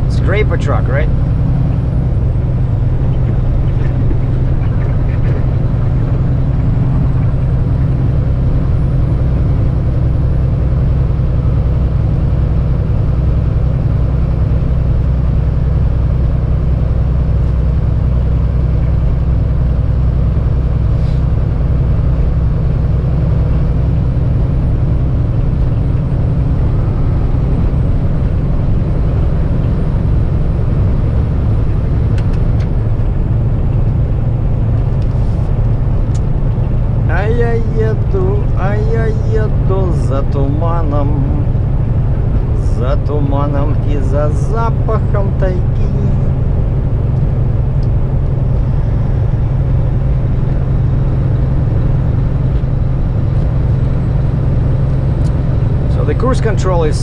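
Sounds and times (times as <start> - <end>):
tyre and road noise: 0.0 - 15.5
diesel truck engine droning: 0.0 - 57.0.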